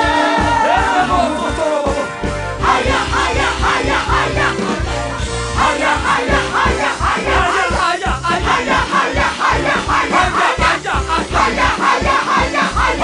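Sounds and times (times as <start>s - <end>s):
gospel singing over a band: 0.0s - 13.0s.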